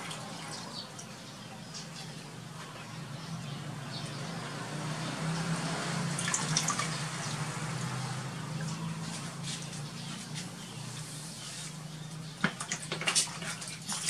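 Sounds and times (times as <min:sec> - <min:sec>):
water splashing in a plastic tub: 0:00.0 - 0:01.1, 0:05.1 - 0:09.4, 0:12.4 - 0:14.0.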